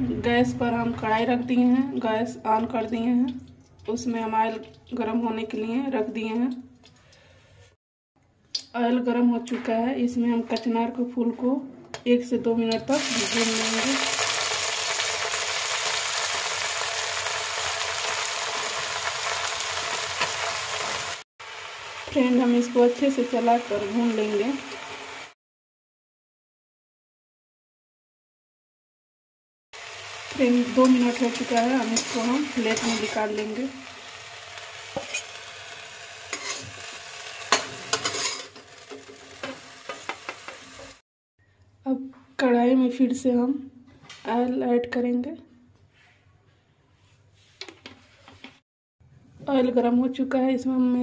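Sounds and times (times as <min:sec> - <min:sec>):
flowers frying in hot oil: 0:12.9 - 0:25.4, 0:29.8 - 0:41.0
steel spatula scraping metal pan: 0:30.7 - 0:33.6, 0:34.9 - 0:35.4, 0:36.3 - 0:41.0.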